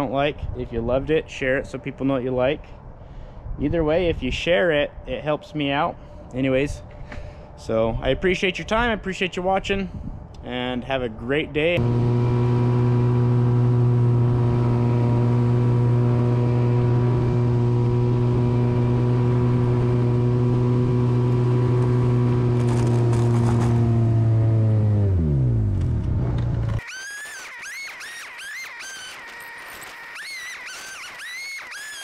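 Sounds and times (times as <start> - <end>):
side-by-side engine running: 11.8 - 26.8.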